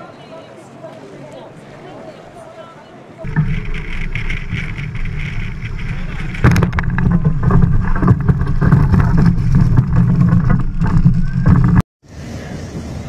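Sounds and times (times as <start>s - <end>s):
wind: 0.0s - 13.0s
water splashing: 3.2s - 11.8s.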